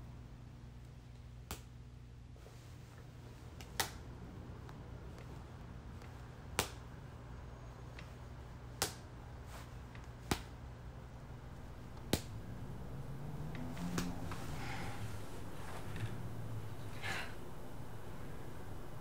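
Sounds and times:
low room hum: 0:00.0 - 0:19.0
ball caught in hand: 0:06.5 - 0:06.9.

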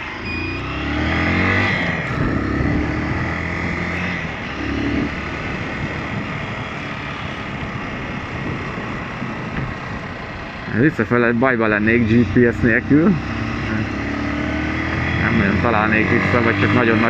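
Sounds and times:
motorcycle engine running: 0:00.0 - 0:17.0
wind rushing on microphone: 0:01.8 - 0:13.8.

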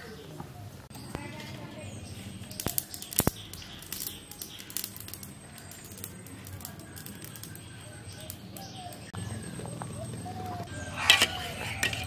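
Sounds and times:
fire clicks and crackles: 0:01.1 - 0:10.6
pot boiling with bubbling hiss: 0:02.2 - 0:09.9.

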